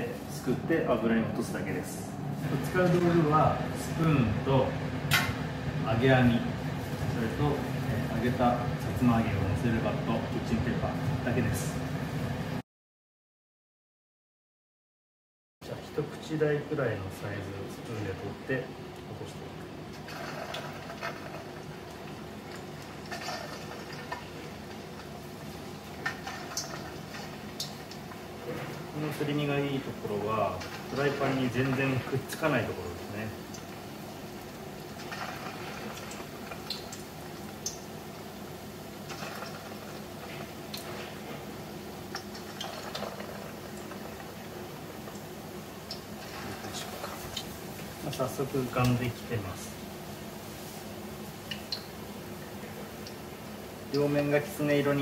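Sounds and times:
hot oil sizzling and bubbling: 2.3s - 12.6s, 16.7s - 55.0s
sharp crackles: 19.9s - 29.4s, 38.9s - 49.1s.

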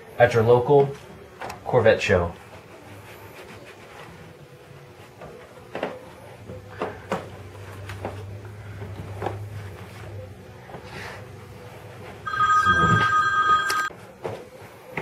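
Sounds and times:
cloth rustling while wiping: 0.8s - 6.5s
two-tone electronic ring: 12.3s - 13.9s.

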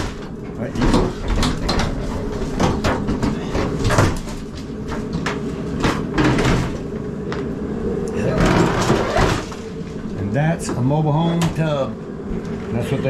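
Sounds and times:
sharp knocks and cracks: 0.0s - 6.8s
bathtub scraping and creaking: 0.0s - 6.9s, 8.1s - 11.7s.

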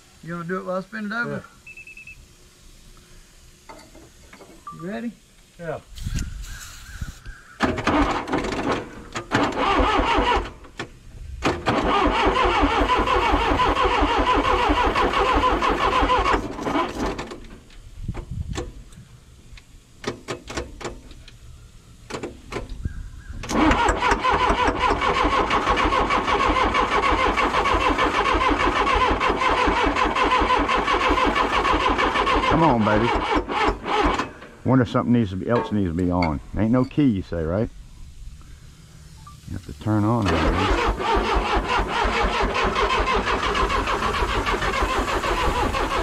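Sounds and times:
starter motor cranking diesel engine: 7.6s - 17.7s, 23.4s - 34.6s, 39.6s - 46.0s.

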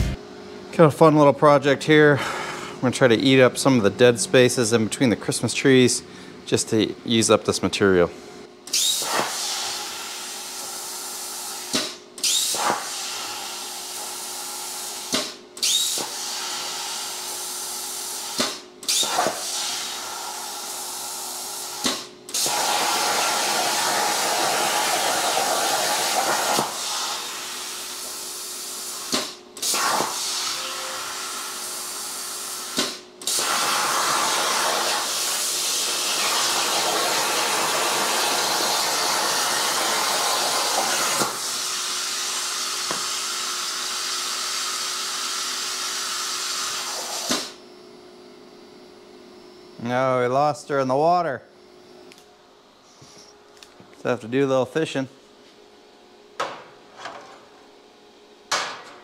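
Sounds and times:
plasma torch hissing: 8.7s - 47.6s.

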